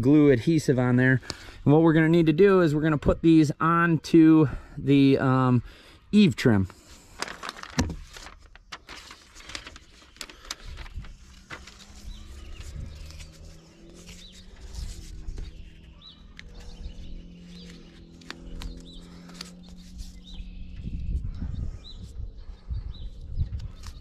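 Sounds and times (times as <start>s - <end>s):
foam strip clicks and rustles: 6.8s - 14.6s.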